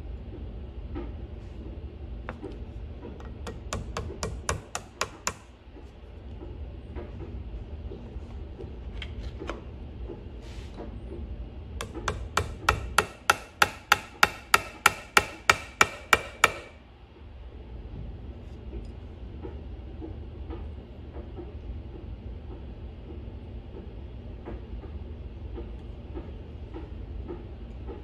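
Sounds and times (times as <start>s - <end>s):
hammer tapping metal punch: 3.2s - 5.5s, 11.8s - 16.8s.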